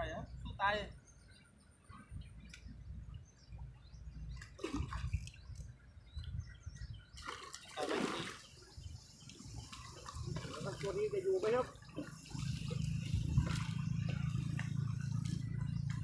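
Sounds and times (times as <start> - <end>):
fish splashing in water: 4.3 - 5.6, 7.2 - 16.0
low rumble: 11.9 - 16.0.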